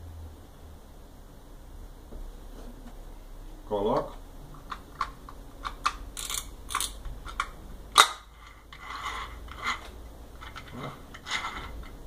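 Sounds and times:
metal and plastic parts clicking: 0:04.7 - 0:08.2
short scrape: 0:08.4 - 0:09.9.

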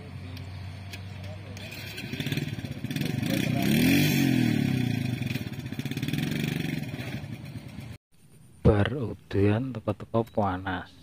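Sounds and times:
vehicle engine passing by: 0:00.0 - 0:08.0.

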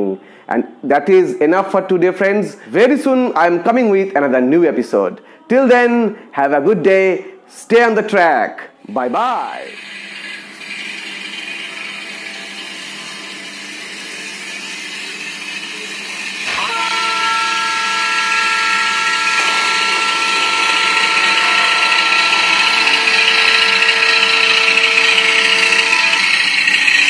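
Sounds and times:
model train rolling on track: 0:09.4 - 0:27.0
model diesel engine sound: 0:15.4 - 0:27.0
multi-tone horn blast: 0:16.4 - 0:27.0.

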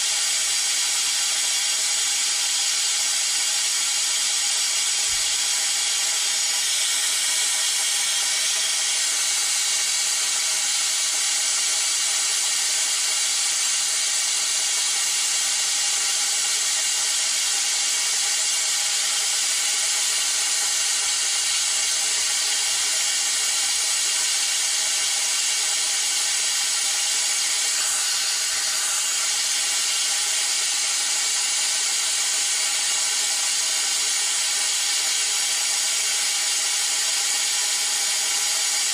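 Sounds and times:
compressed air vacuum tool hissing: 0:00.0 - 0:14.4, 0:18.4 - 0:34.6.

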